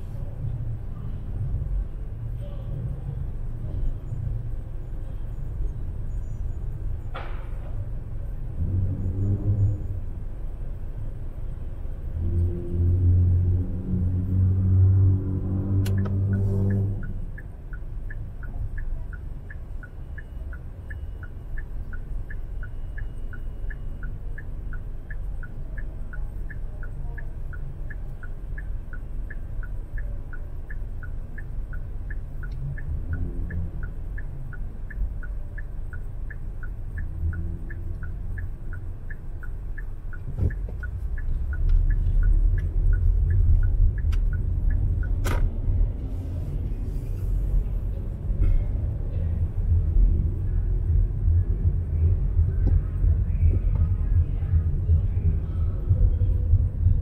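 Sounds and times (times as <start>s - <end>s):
street traffic rumble: 0.0s - 57.0s
faint regular ticking: 15.8s - 46.1s.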